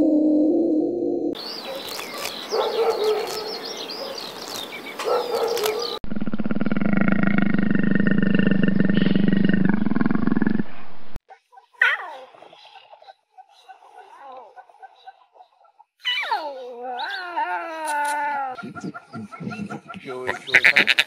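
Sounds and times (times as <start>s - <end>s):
wolves yipping and whining: 5.0s - 6.0s
panther pulsing growl: 6.1s - 10.6s.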